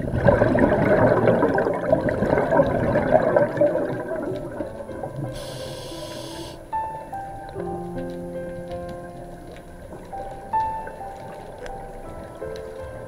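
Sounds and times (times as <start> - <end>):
regulator exhale bubbling: 0.0 - 6.7
short hiss: 5.3 - 6.6.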